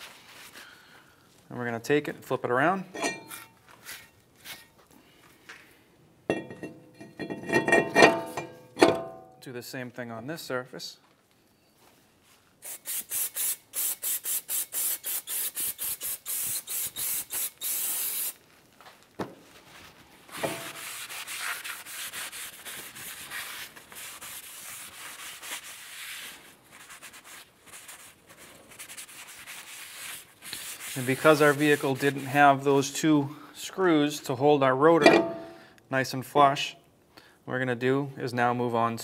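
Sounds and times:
rag rubbing on metal brake rotor: 20.3 - 22.1.

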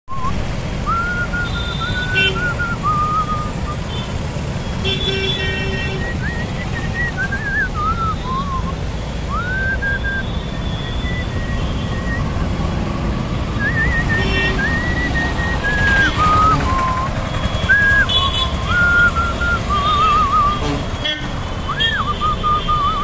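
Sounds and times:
road traffic: 0.0 - 23.0
person whistling a tune: 0.1 - 3.8, 5.9 - 12.7, 13.5 - 20.6, 21.6 - 23.0
vehicle horns honking: 1.1 - 2.8, 3.8 - 6.8, 9.8 - 12.3, 13.6 - 15.1, 15.8 - 23.0.

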